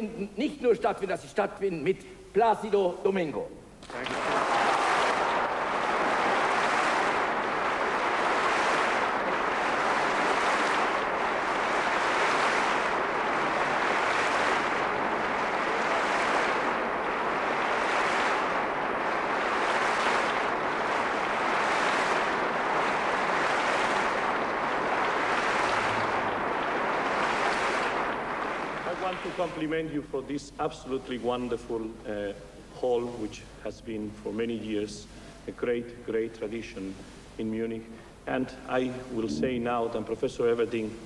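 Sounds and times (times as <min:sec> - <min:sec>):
large audience applauding: 0:03.8 - 0:29.7.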